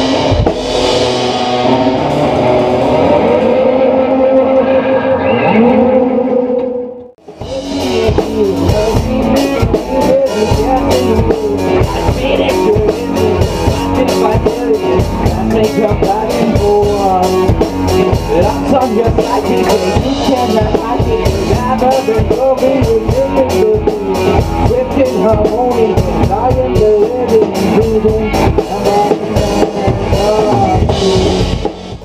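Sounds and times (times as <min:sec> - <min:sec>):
drum hits: 0:00.0 - 0:02.9
rock band playing live: 0:00.0 - 0:32.0.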